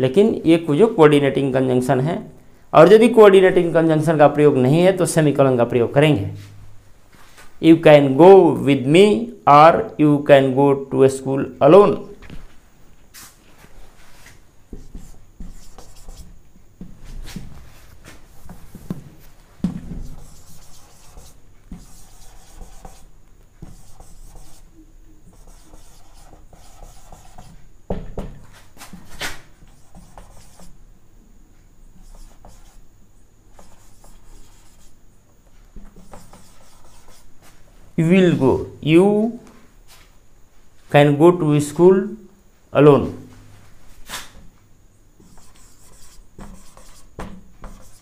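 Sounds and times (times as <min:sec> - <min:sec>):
marker scratching on whiteboard: 0:14.7 - 0:16.4, 0:19.8 - 0:27.6, 0:29.6 - 0:30.8, 0:32.0 - 0:32.8, 0:33.5 - 0:35.0, 0:35.8 - 0:37.3, 0:45.2 - 0:48.0
marker tapping on board: 0:19.6 - 0:23.0, 0:23.6 - 0:24.6.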